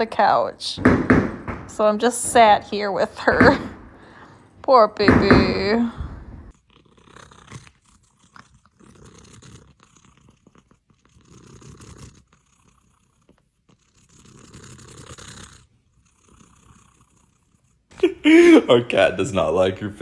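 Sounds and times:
cat purring: 0:06.0 - 0:17.9.

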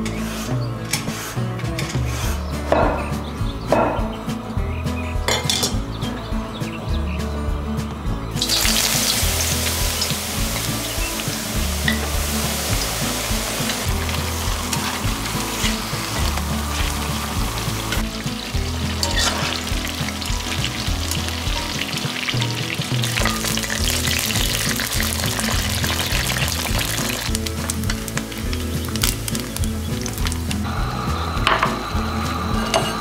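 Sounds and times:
soft background music: 0:00.0 - 0:33.0
food deep-frying in oil: 0:08.4 - 0:31.3.

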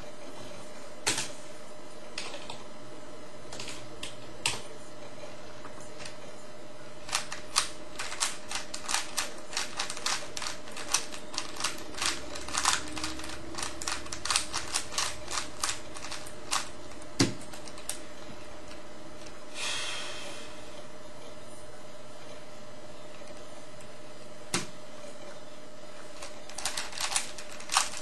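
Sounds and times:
puzzle cube clicking: 0:07.1 - 0:16.7, 0:26.2 - 0:28.0.

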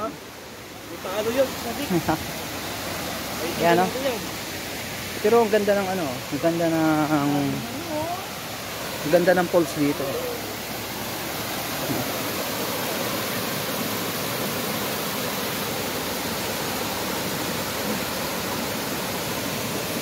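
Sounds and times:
water rushing down waterfall: 0:00.0 - 0:20.0.

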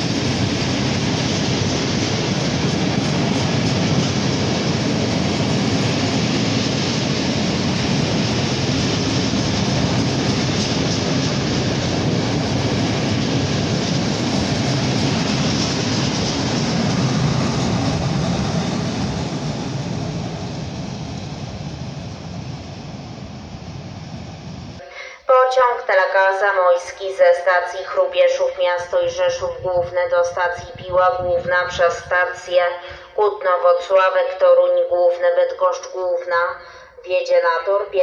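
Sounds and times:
train wheels on rail: 0:00.0 - 0:24.8.

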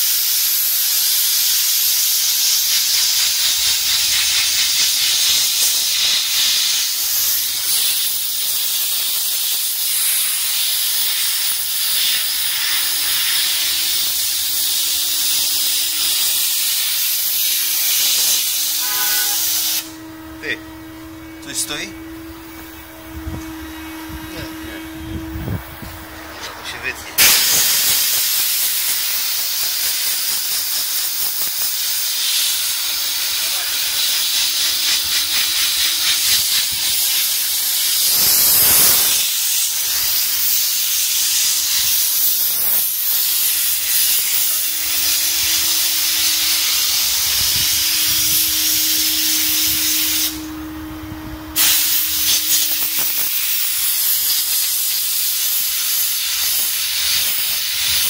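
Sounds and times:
steam nozzle hissing: 0:00.0 - 0:50.7, 0:51.4 - 0:58.0
faint steady hum: 0:18.8 - 0:27.2.

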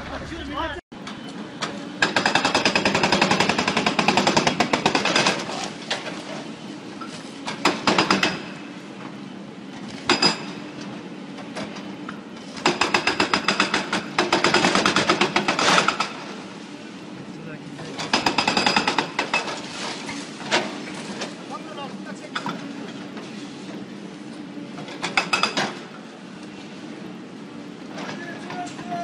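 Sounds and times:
hydraulic breaker hammering concrete: 0:02.0 - 0:05.7, 0:07.5 - 0:08.6, 0:12.6 - 0:16.3, 0:18.0 - 0:19.6, 0:24.9 - 0:25.9.

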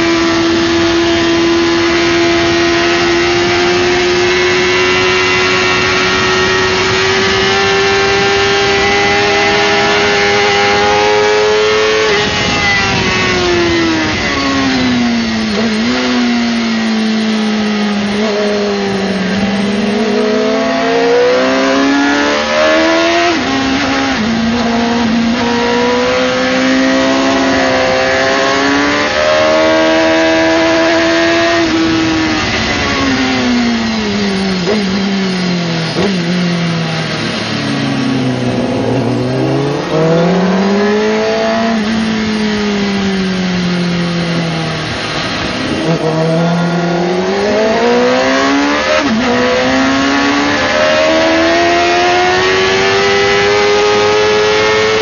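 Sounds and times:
motorcycle engine revving: 0:00.0 - 0:55.0
wind noise: 0:00.0 - 0:55.0.

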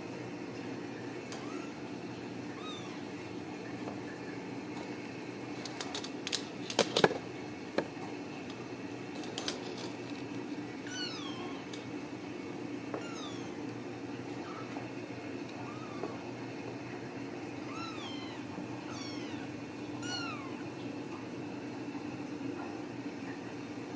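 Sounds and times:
kittens meowing: 0:01.4 - 0:01.8, 0:02.5 - 0:03.1, 0:10.8 - 0:11.8, 0:13.0 - 0:13.6, 0:15.5 - 0:16.2, 0:17.6 - 0:20.7
sharp clicks and knocks: 0:05.6 - 0:07.2.

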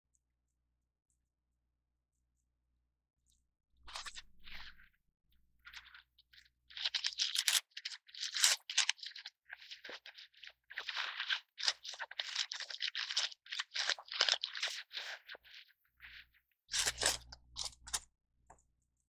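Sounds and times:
wrapping paper crinkling: 0:05.6 - 0:18.0.

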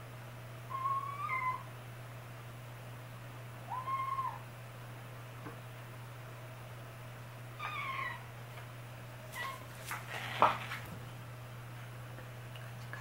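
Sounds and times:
kitten meowing: 0:00.7 - 0:01.7, 0:03.7 - 0:04.4, 0:07.6 - 0:08.2.

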